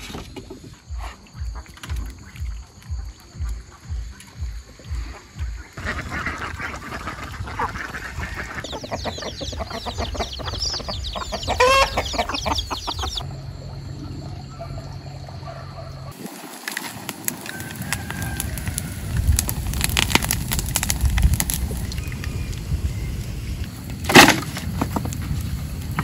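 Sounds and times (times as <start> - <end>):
hens clucking: 2.8 - 13.3
chicks peeping: 3.4 - 13.2
loud chicken call: 7.4 - 13.2, 17.4 - 19.2
low steady hum: 8.4 - 16.1.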